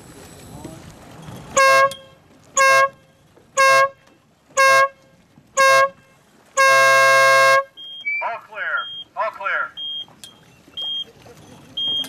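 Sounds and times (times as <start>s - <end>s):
horn short blasts: 1.5s - 4.0s, 4.6s - 5.0s, 5.6s - 7.8s.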